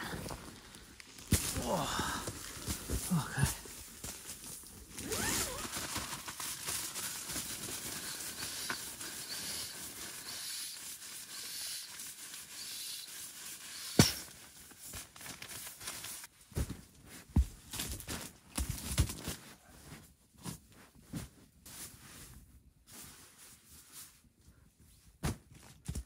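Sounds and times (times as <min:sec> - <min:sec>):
pump sack pushing air: 0:05.0 - 0:14.4.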